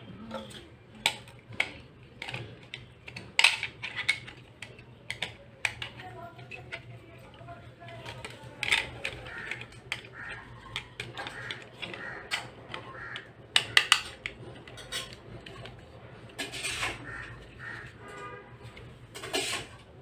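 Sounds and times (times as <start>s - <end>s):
plastic clicks and taps: 1.0s - 6.1s.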